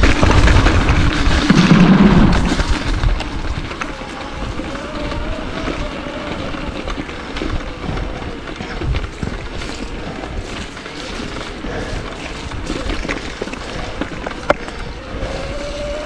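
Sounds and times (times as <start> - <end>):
bike clicks and rattles: 0.0 - 16.0
tyre and wind rushing: 0.0 - 16.0.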